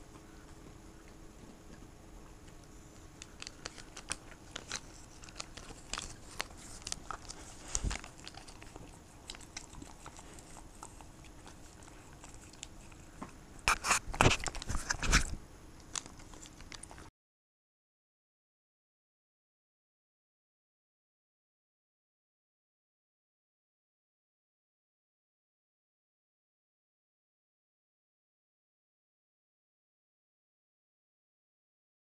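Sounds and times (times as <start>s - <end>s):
dog licking and smacking: 2.4s - 17.1s.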